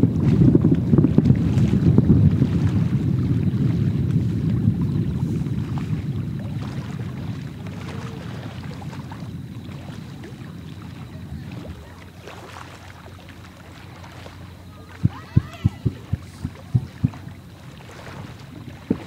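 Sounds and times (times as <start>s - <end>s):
distant fireworks rumble: 0.0s - 12.3s, 14.3s - 19.0s
faint fireworks crackling: 14.3s - 19.0s.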